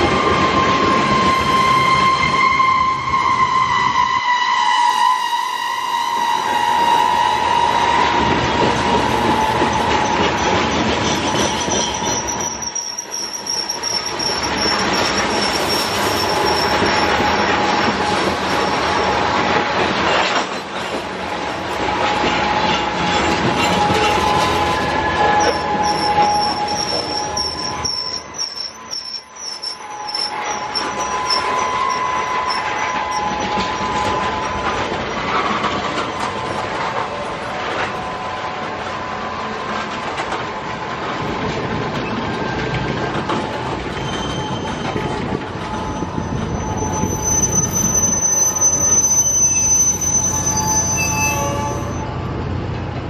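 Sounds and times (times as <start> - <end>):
shrill squeal: 0.0 - 19.1, 21.9 - 36.7, 43.9 - 52.2
wheel squeal: 0.0 - 19.2, 21.8 - 37.1, 42.0 - 52.3
train wheels on rails: 0.0 - 53.0.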